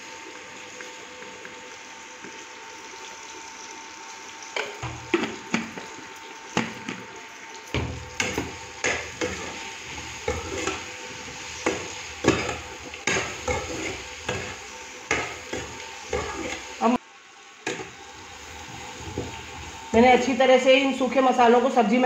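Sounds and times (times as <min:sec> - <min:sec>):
hot oil sizzling: 0:00.0 - 0:22.0
steel spatula scraping a pan: 0:08.2 - 0:16.7.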